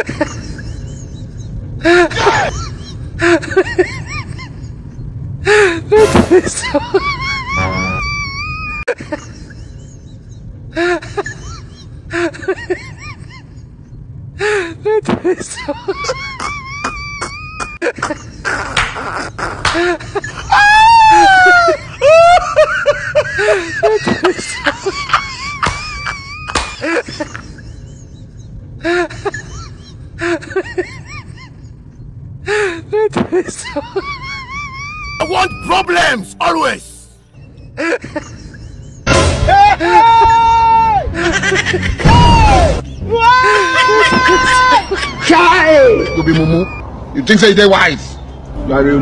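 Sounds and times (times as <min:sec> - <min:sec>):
high whimpering cries: 0:07.2 - 0:08.8.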